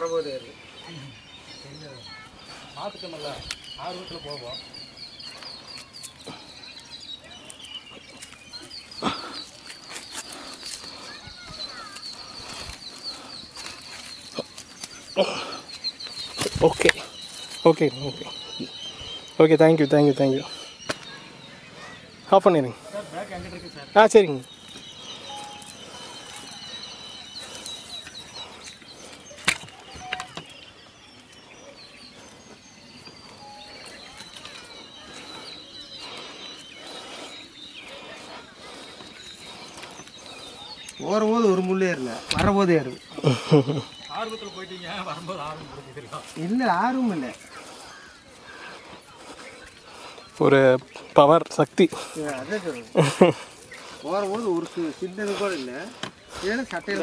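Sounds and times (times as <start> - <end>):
footsteps rustling through brush: 0.0 - 57.0
high-pitched chirping: 9.4 - 31.3, 32.4 - 41.8.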